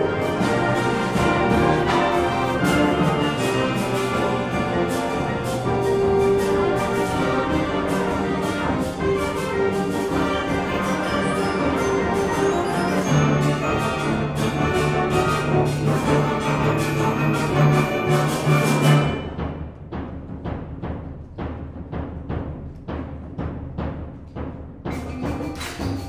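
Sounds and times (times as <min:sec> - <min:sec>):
concert band playing: 0:00.0 - 0:19.6.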